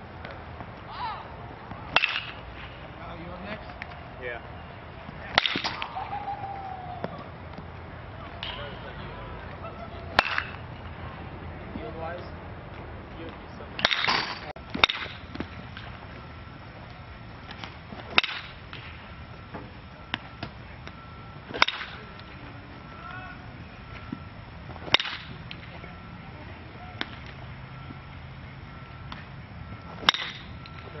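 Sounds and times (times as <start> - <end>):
bat hitting ball: 1.7 - 2.8, 5.2 - 7.7, 8.3 - 9.0, 10.1 - 10.7, 13.8 - 16.0, 17.4 - 22.3, 24.7 - 25.8, 27.0 - 27.4, 29.9 - 30.9.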